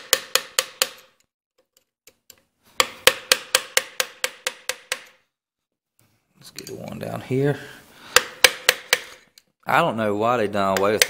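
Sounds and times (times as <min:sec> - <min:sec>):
hammer striking screwdriver on metal: 0:00.0 - 0:01.2, 0:02.1 - 0:05.2, 0:08.1 - 0:09.2.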